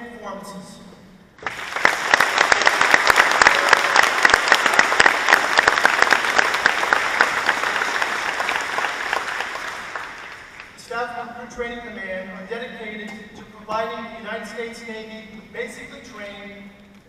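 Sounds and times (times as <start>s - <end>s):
audience applauding: 1.4s - 10.8s.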